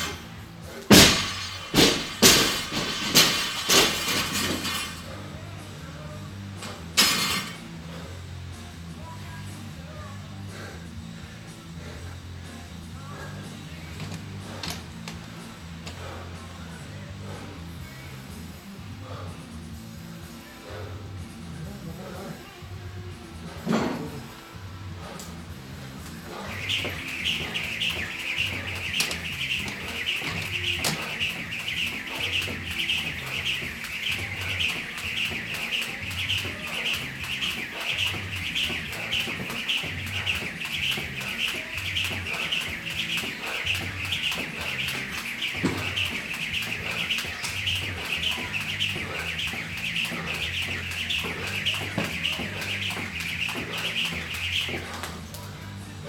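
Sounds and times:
jump rope swishing: 0:00.8 - 0:05.2, 0:25.0 - 0:55.8.

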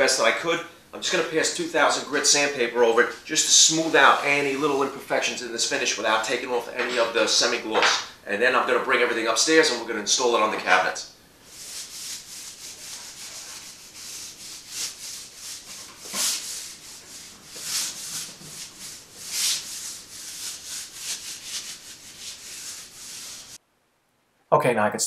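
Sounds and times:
sandpaper rubbing strokes: 0:03.4 - 0:05.0, 0:11.4 - 0:23.6.

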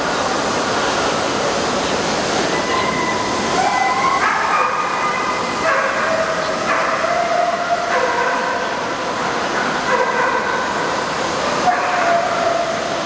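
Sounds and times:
crowded hall din: 0:00.0 - 0:13.0
dog howling: 0:02.5 - 0:08.4, 0:11.6 - 0:12.8.

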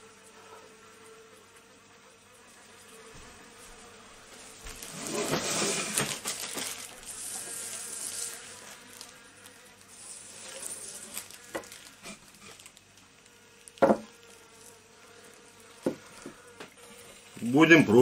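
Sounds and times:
honeybee buzzing: 0:00.0 - 0:18.0
plastic bag crackling: 0:04.4 - 0:17.4.

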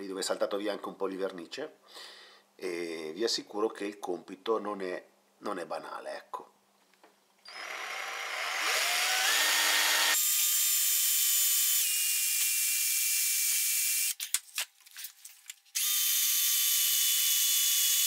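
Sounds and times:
drill stop-start blips and clicks: 0:07.5 - 0:10.2
electric drill boring metal: 0:07.5 - 0:14.2, 0:15.8 - 0:18.0.

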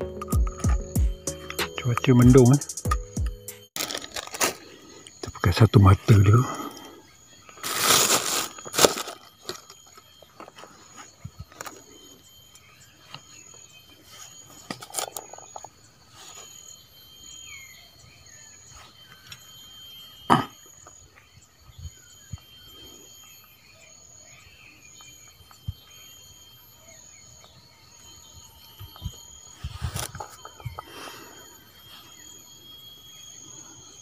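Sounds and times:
insects chirping: 0:00.0 - 0:34.0
plastic bags rustling: 0:03.8 - 0:04.8, 0:07.6 - 0:09.8.

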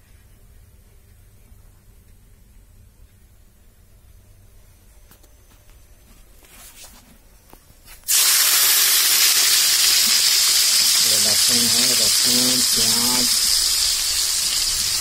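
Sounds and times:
onions sizzling in hot oil: 0:08.1 - 0:15.0.

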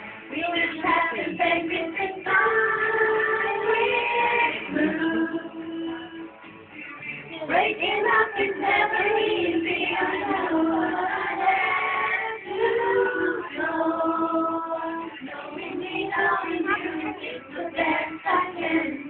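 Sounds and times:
high voice singing: 0:00.3 - 0:06.3.

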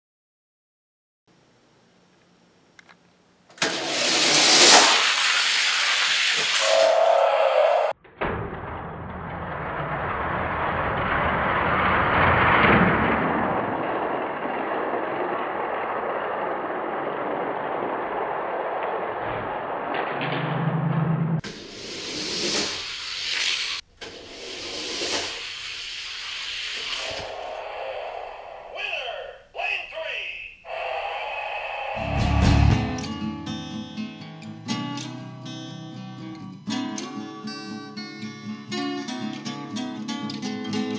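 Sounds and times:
car engine noise: 0:08.8 - 0:21.4, 0:31.8 - 0:33.4
steady engine-like rush: 0:10.0 - 0:21.4, 0:31.7 - 0:33.4
brief low hum: 0:32.0 - 0:33.4.

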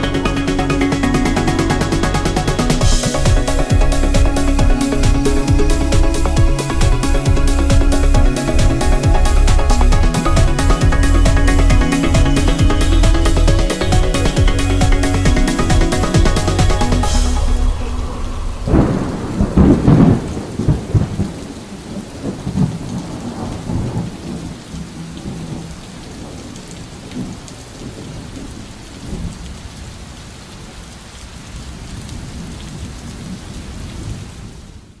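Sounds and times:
steady rain: 0:00.0 - 0:35.0
rolling thunder: 0:02.5 - 0:29.6.

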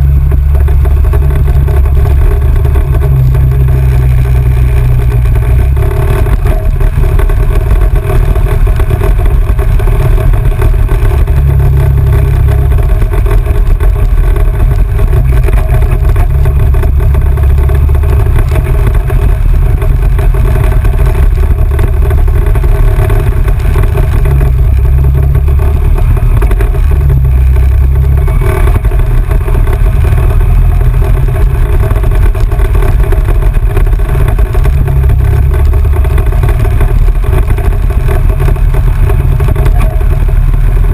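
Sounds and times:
off-road vehicle driving on dirt: 0:00.0 - 0:40.9.

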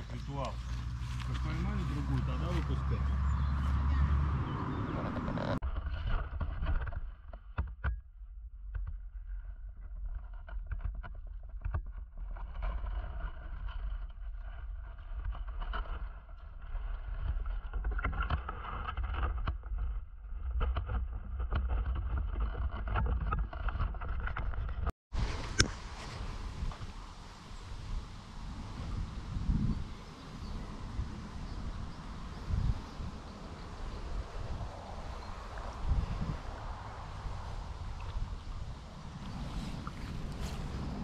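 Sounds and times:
water splashing and sloshing: 0:33.2 - 0:41.0.

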